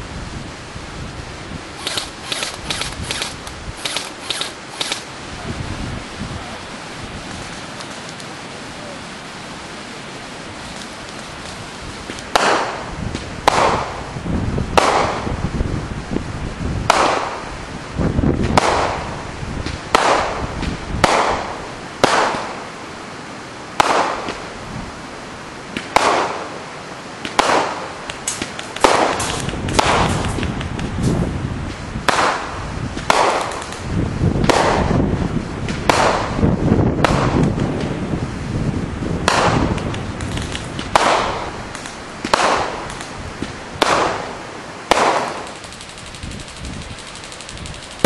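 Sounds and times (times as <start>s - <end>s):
wind buffeting microphone: 0.0s - 8.9s, 10.2s - 21.9s, 28.1s - 48.0s
firework barrage: 10.8s - 15.5s, 18.4s - 22.6s, 27.2s - 38.2s, 39.1s - 48.0s.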